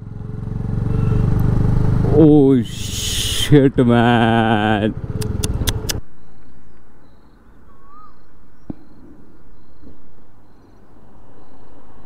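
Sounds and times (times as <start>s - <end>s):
bird whistle: 7.7s - 9.0s.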